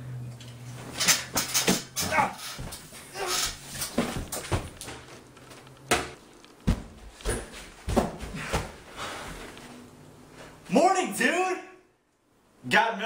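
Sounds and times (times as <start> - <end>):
sharp knocks and thumps: 5.9 - 8.8.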